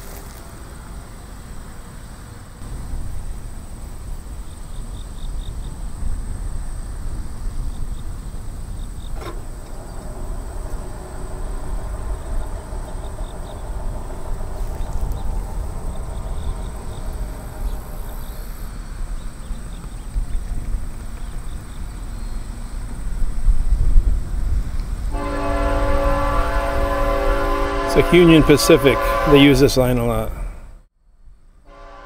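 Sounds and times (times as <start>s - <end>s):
train wheels rumbling on rail: 0.0s - 30.8s
crickets trilling: 0.6s - 26.7s.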